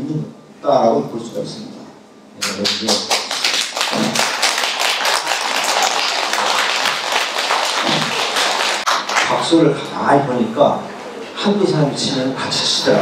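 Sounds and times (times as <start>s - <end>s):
audience applauding: 2.4s - 9.4s.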